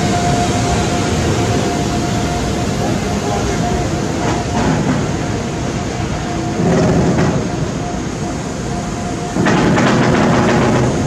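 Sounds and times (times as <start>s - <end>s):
freight train passing: 0.0s - 11.0s.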